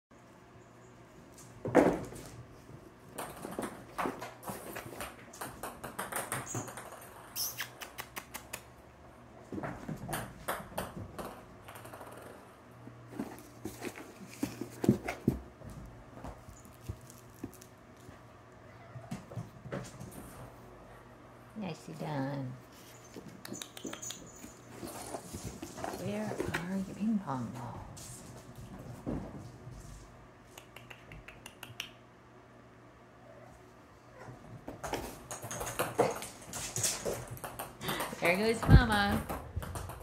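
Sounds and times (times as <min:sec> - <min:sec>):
toy balls skittering on wood floor: 0:03.2 - 0:08.5, 0:34.7 - 0:40.0
kittens scampering: 0:22.7 - 0:26.4.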